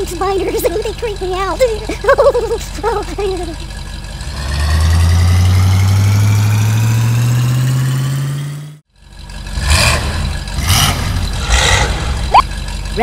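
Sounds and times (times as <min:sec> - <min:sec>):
engines idling and revving: 0:00.0 - 0:13.0
cartoon engine rising in pitch: 0:10.6 - 0:12.5.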